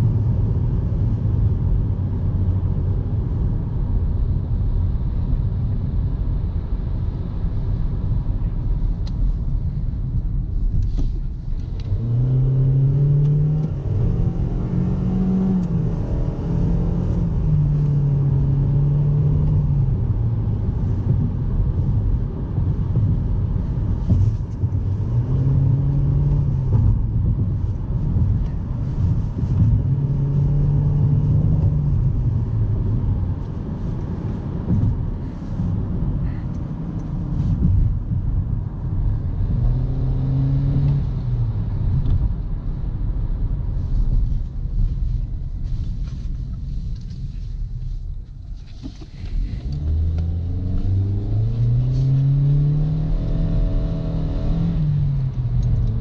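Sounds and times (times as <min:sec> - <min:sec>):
low road rumble: 0:00.0 - 0:56.0
car engine revving: 0:11.6 - 0:38.2, 0:38.9 - 0:42.1, 0:48.8 - 0:56.0.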